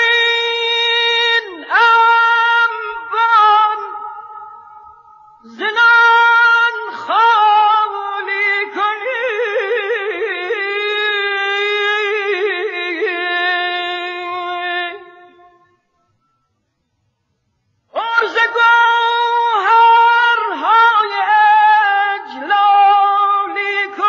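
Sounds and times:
man singing classical vocals: 18.0s - 24.0s.

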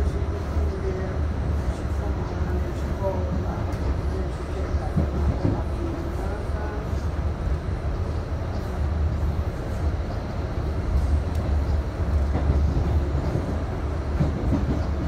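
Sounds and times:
steel wheels rumbling on rails: 0.0s - 15.0s.

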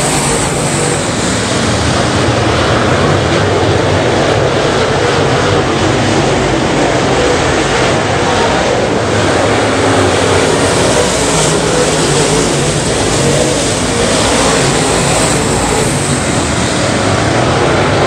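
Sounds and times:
race car engines roaring: 0.0s - 18.0s.

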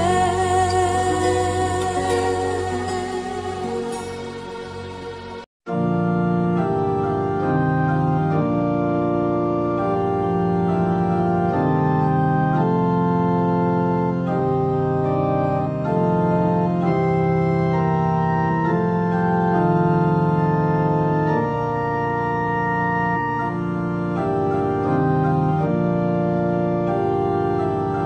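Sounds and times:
organ chords: 0.0s - 28.0s.

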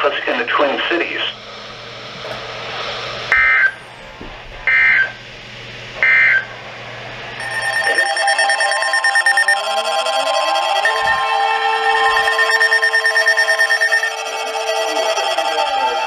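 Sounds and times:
steady electronic tones with rising glides: 1.3s - 16.0s
digital data tone bursts: 3.3s - 3.9s, 4.7s - 5.2s, 6.0s - 6.5s, 7.3s - 16.0s.

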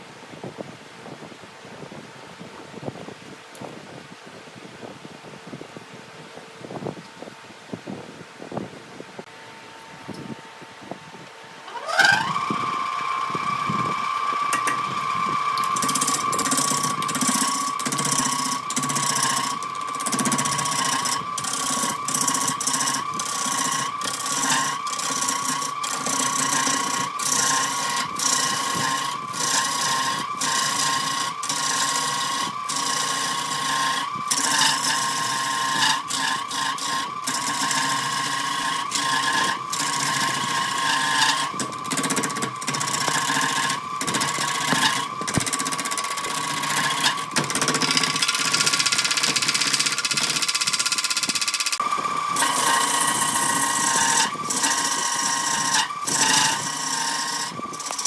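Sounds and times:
lathe motor whining: 9.4s - 58.0s.

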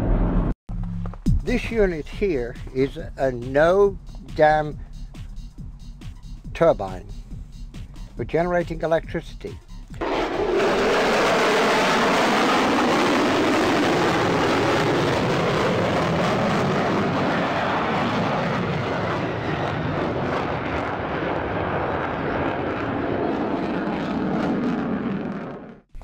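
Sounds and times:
fighter jet flying past: 10.0s - 25.8s.

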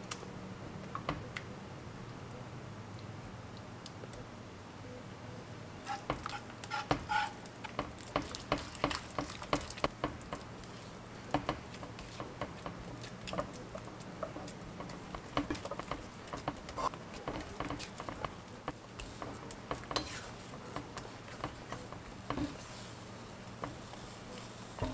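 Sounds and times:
dough squelching: 5.8s - 24.9s
spatula scraping sticky dough: 5.8s - 24.9s.

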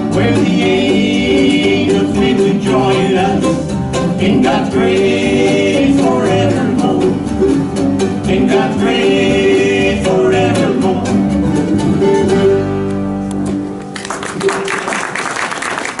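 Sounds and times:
band singing in harmony: 0.0s - 12.2s
strummed acoustic guitars: 0.0s - 14.7s
audience applause: 13.9s - 16.0s.

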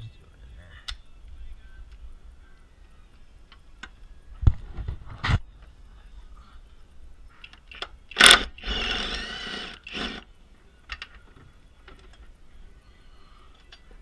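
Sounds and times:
cordless power tool spinning: 8.1s - 10.2s.

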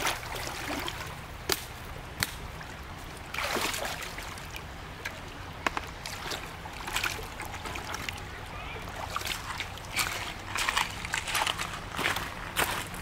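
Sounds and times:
shallow water splashing: 0.0s - 1.6s, 2.2s - 12.2s
sharp water slaps: 0.0s - 2.6s, 3.3s - 4.4s, 5.6s - 12.2s.

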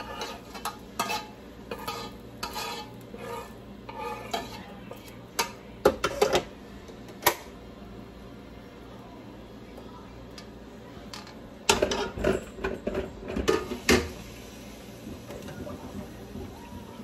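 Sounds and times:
spoon scraping a pan: 0.0s - 6.5s, 11.7s - 14.1s.

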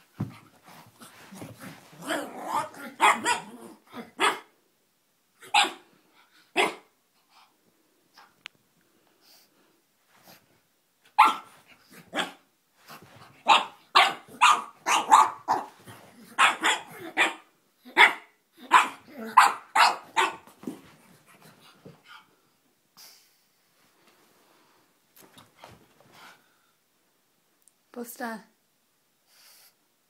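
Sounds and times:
dog barking: 2.2s - 3.5s, 4.2s - 4.5s, 5.5s - 5.8s, 6.5s - 6.9s, 11.2s - 11.5s, 12.1s - 12.4s, 13.4s - 15.8s, 16.4s - 20.4s.

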